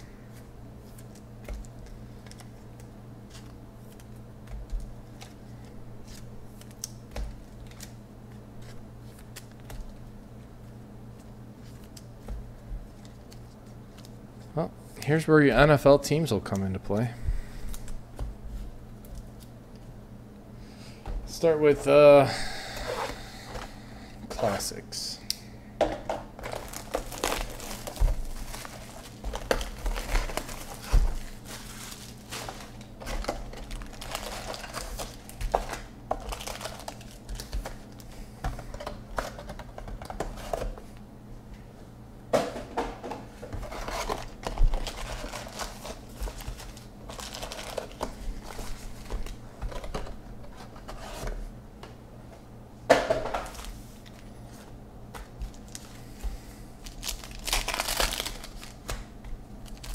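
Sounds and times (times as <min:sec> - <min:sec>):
cardboard boxes rustling and tearing: 0:26.4 - 0:37.7, 0:43.6 - 0:51.3, 0:56.8 - 0:58.8
wrappers crinkling: 0:26.4 - 0:38.1, 0:43.8 - 0:49.8, 0:55.4 - 0:56.0, 0:56.8 - 0:59.0, 0:59.6 - 0:59.9.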